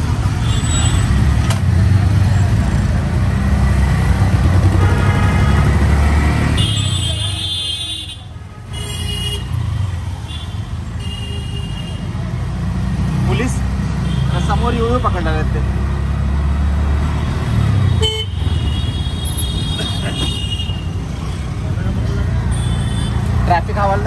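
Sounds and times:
vehicle horns tooting: 0:04.8 - 0:05.8, 0:17.9 - 0:20.9.

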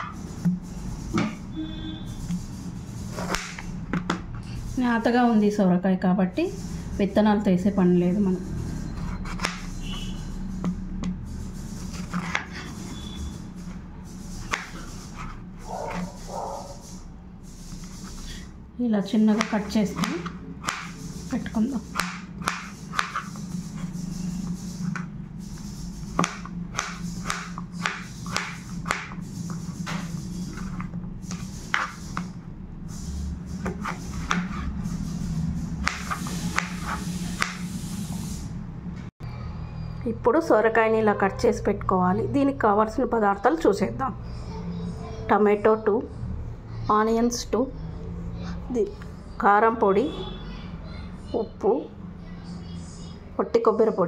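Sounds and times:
knife cutting on plastic board: 0:03.1 - 0:04.1, 0:14.4 - 0:16.5, 0:19.3 - 0:25.1, 0:26.1 - 0:32.3, 0:33.6 - 0:34.7, 0:35.8 - 0:37.6.

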